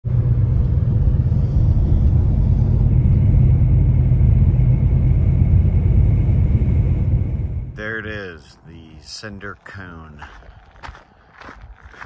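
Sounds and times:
car driving at highway speed: 0.0 - 8.2.

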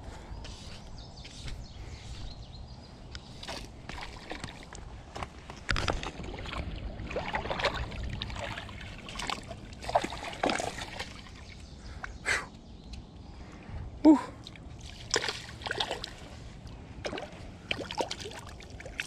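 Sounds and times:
fish splashing in water: 6.1 - 11.6, 14.8 - 16.3, 17.0 - 19.0.

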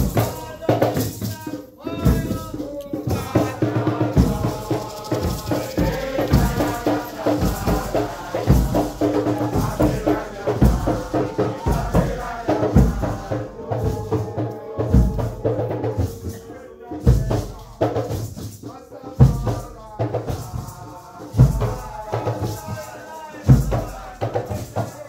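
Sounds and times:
group of voices chanting: 0.0 - 17.8, 18.7 - 25.0
hand drums: 0.0 - 25.0
rattling shakers: 0.0 - 25.0
deep bass drum beat: 2.0 - 14.1.

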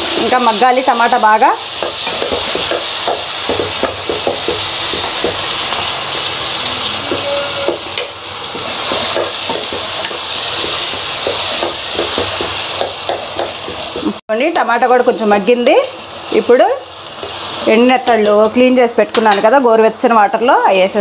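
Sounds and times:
masala sizzling in hot oil: 0.0 - 21.0
metal spoon scraping a pan: 4.9 - 14.1.

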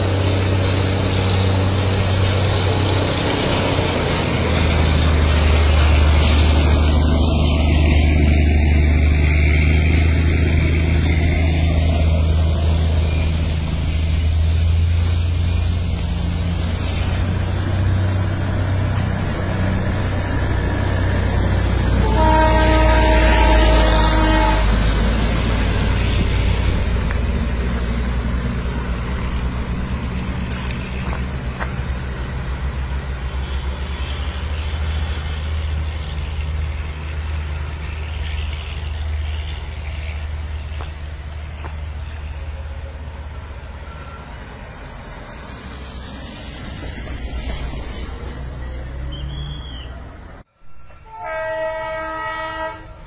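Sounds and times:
horn blast: 21.9 - 24.8, 50.9 - 53.0.

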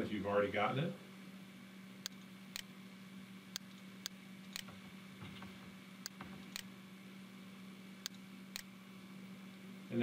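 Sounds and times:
computer mouse clicks: 3.6 - 4.8.

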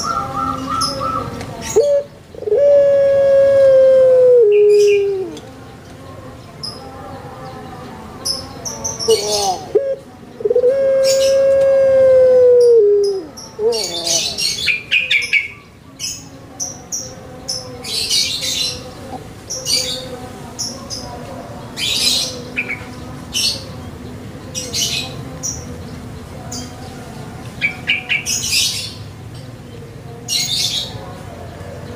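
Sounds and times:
small birds chirping: 0.0 - 2.7, 13.0 - 31.9
dove cooing: 0.0 - 5.4, 9.0 - 15.2.

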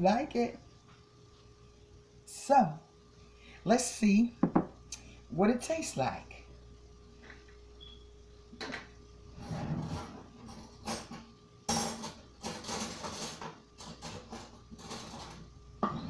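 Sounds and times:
kitchen items rustling and knocking: 9.7 - 16.0.

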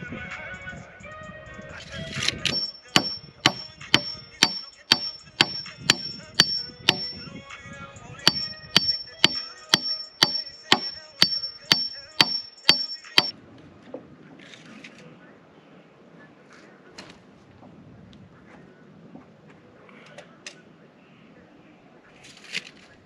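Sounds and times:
hammer driving a stake: 2.5 - 7.3, 8.3 - 13.3.

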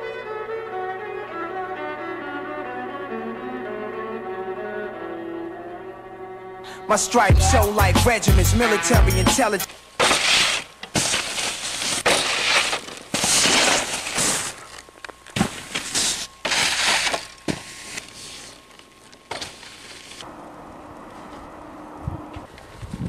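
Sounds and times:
snowboards scraping over snow: 9.4 - 18.6.

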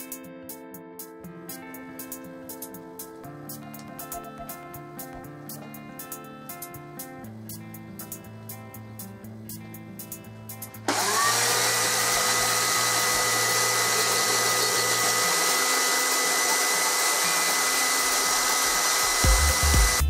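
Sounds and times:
electric chainsaw motor whine: 10.8 - 20.0.

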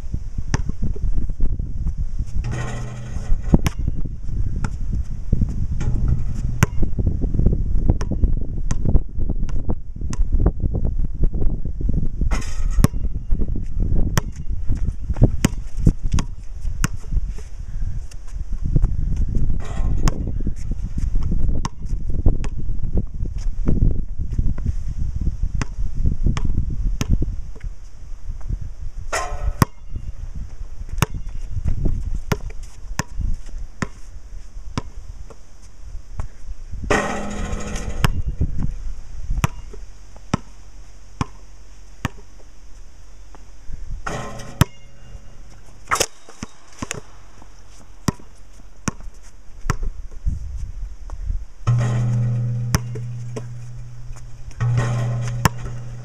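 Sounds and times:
wind rumbling on microphone: 0.0 - 40.1, 43.5 - 56.0
basketball bouncing on concrete: 2.4 - 4.8, 5.4 - 7.1, 7.9 - 10.3, 12.4 - 13.2, 14.0 - 17.1, 18.8 - 20.6, 21.2 - 22.6, 26.4 - 27.6, 29.2 - 29.9, 30.9 - 33.2, 33.8 - 34.0, 36.9 - 38.3, 39.4 - 40.6, 41.2 - 41.4, 42.0 - 42.4, 44.1 - 50.2, 51.7 - 56.0.

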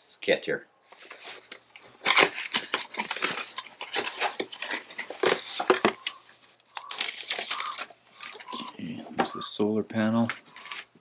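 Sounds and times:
cardboard and paper rustling: 0.9 - 8.6, 10.2 - 11.0.

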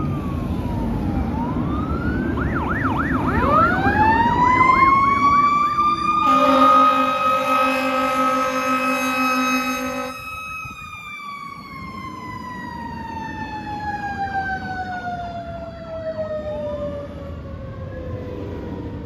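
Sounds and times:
faint rising siren wail: 0.0 - 19.0
mechanical siren falling wail: 0.0 - 19.0
fire engine air horn blasting: 6.2 - 11.0.

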